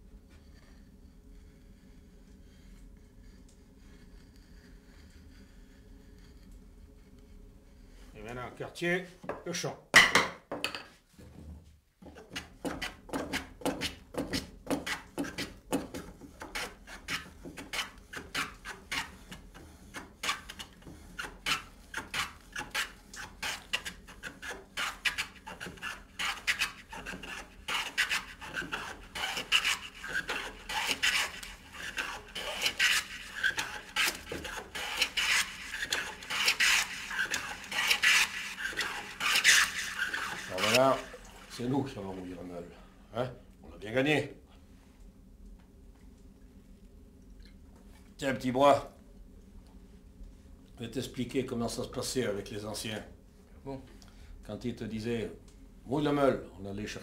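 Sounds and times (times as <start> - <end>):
hand plane shaving wood: 12.2 - 42.3.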